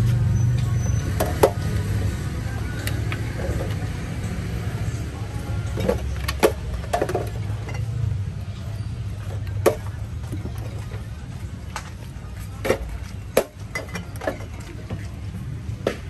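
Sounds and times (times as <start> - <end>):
glass bottles clinking: 5.6 - 8.2, 12.6 - 15.1.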